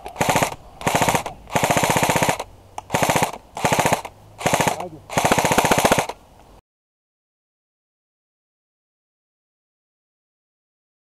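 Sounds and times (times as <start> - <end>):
airsoft rifle full-auto bursts: 0.1 - 6.2.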